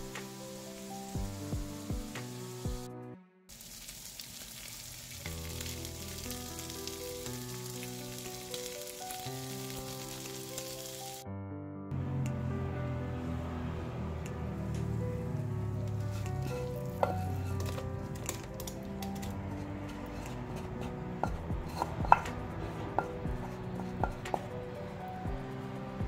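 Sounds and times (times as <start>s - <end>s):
shrimp sizzling in hot oil: 0.0s - 2.9s, 3.5s - 11.2s, 15.8s - 19.4s, 20.1s - 25.7s
background music: 0.0s - 3.5s, 5.2s - 26.0s.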